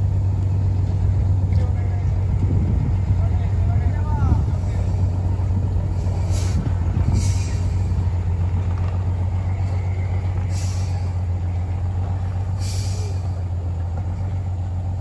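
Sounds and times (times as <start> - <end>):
bus diesel engine under load: 0.0 - 15.0
air release hisses: 6.2 - 7.8, 12.6 - 13.2.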